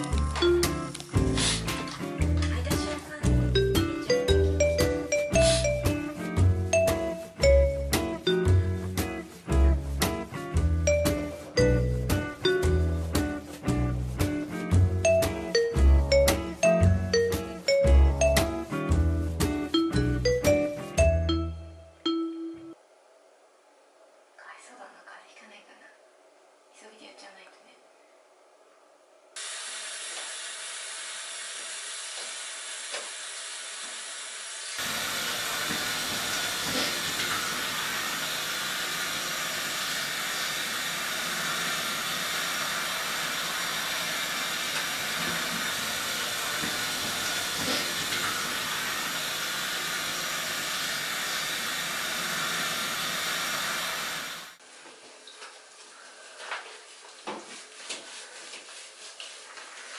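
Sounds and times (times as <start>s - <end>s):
shower head spraying water: 1.0s - 21.1s, 29.4s - 54.6s
faint rubbing: 55.6s - 59.9s.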